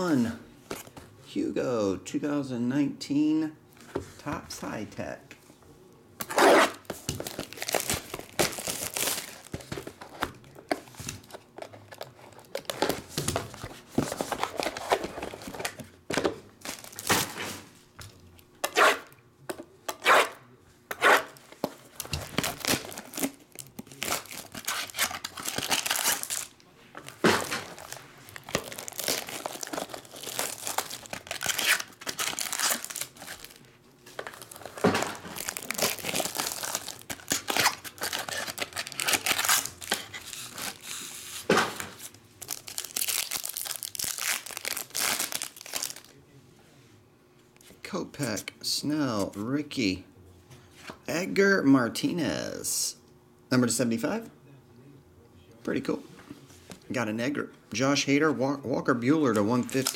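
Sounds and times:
plastic wrap crinkling and tearing: 0:06.5 - 0:09.9, 0:16.6 - 0:17.4, 0:21.9 - 0:41.4, 0:42.0 - 0:46.2, 0:59.6 - 0:59.9.

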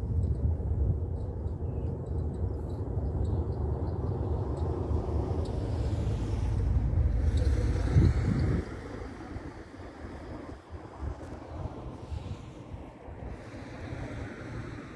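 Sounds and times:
wind buffeting microphone: 0:00.0 - 0:14.9
hiss: 0:11.9 - 0:14.9.

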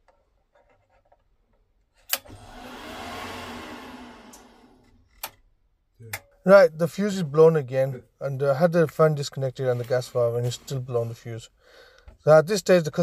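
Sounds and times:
boiler whirring rush: 0:02.3 - 0:04.9.

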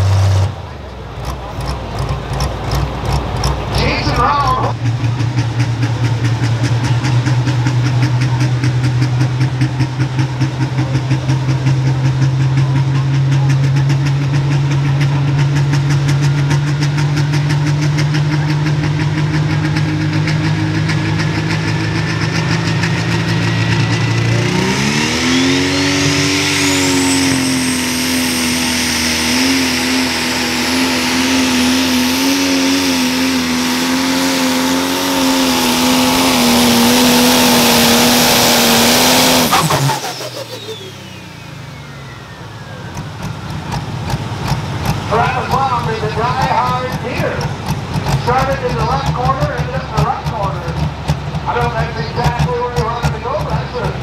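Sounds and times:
diesel engine revving: 0:00.0 - 0:54.0
turbo whine: 0:21.0 - 0:33.5, 0:35.5 - 0:50.0.

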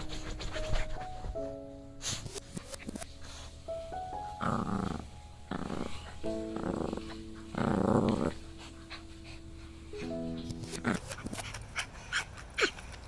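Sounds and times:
puppy growling: 0:04.3 - 0:09.4, 0:10.6 - 0:13.0.

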